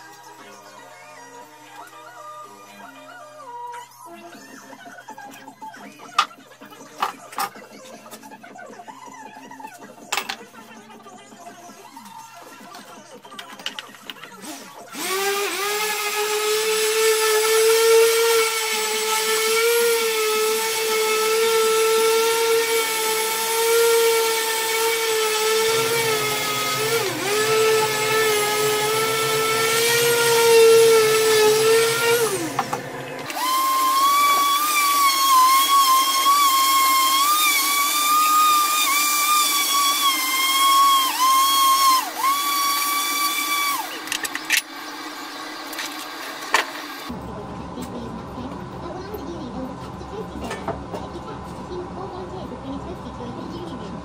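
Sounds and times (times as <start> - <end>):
orbital sander whining: 14.9 - 44.1.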